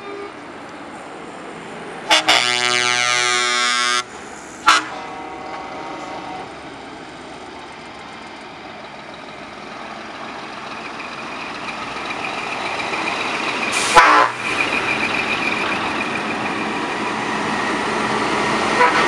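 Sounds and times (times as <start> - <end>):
truck diesel engine: 0.0 - 19.0
truck air horn: 2.1 - 6.5, 13.7 - 14.4, 18.7 - 19.0.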